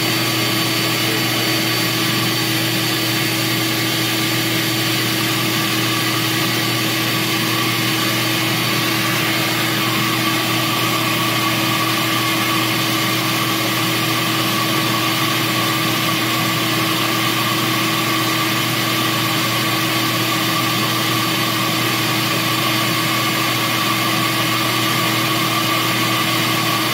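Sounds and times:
flow bench air rush with whine: 0:00.0 - 0:19.5.

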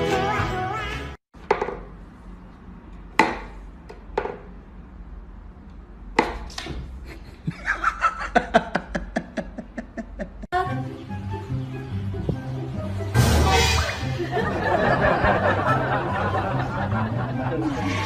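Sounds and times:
person laughing: 0:07.0 - 0:10.5, 0:14.1 - 0:18.0.

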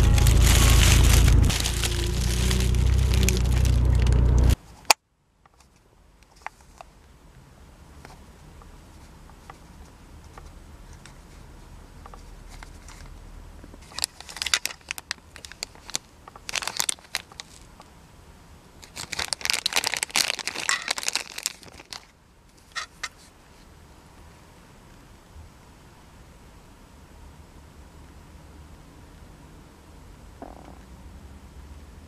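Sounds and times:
plastic bag crinkling: 0:00.0 - 0:04.6, 0:13.8 - 0:17.8, 0:18.8 - 0:22.1.

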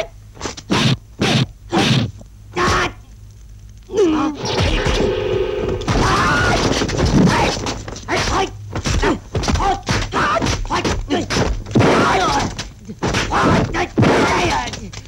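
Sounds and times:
fighters shouting and grunting: 0:00.7 - 0:03.0, 0:05.9 - 0:15.0.

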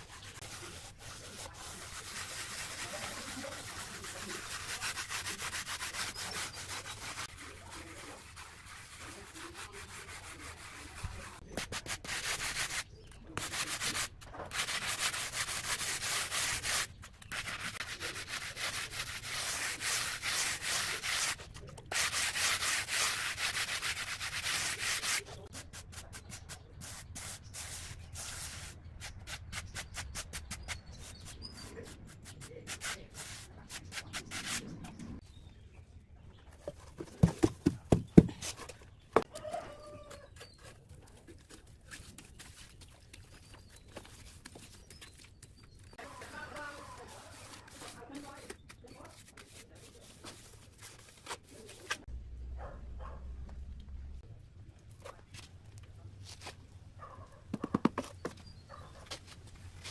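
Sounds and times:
stone block scraping on cement: 0:57.5 - 0:58.6.

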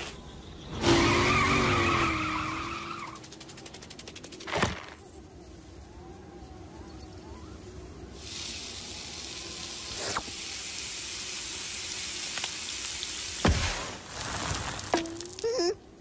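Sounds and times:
cartoon sizzling hiss: 0:08.2 - 0:15.7.

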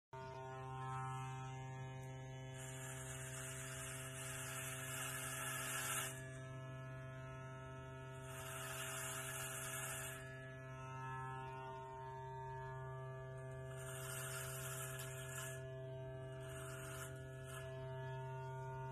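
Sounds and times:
electric hair clippers humming: 0:00.2 - 0:18.9
clipper blade cutting hair: 0:01.4 - 0:06.3, 0:08.2 - 0:10.2, 0:13.7 - 0:15.7, 0:16.3 - 0:17.8.

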